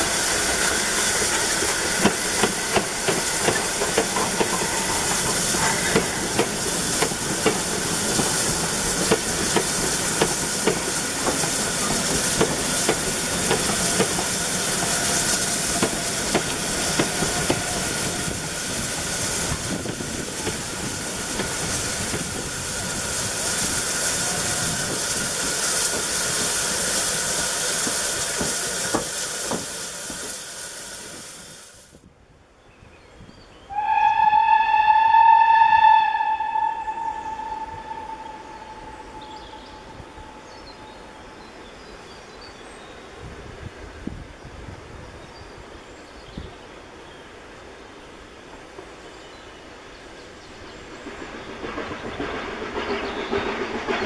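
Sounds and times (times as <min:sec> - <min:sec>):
train wheels clicking over rail joints: 0:00.0 - 0:31.4, 0:50.7 - 0:54.0
steam hissing: 0:00.0 - 0:32.0, 0:33.7 - 0:41.1.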